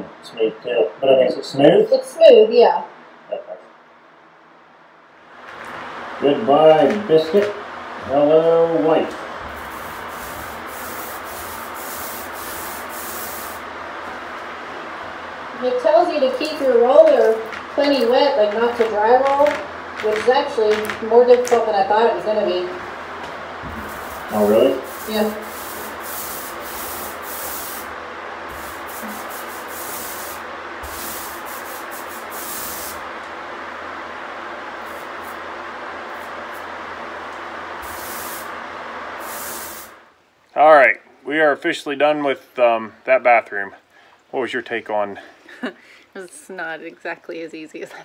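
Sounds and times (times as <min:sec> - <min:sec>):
steady hiss: 0:05.1 - 0:47.4
paint roller rubbing on wall: 0:09.4 - 0:14.3, 0:23.6 - 0:33.0.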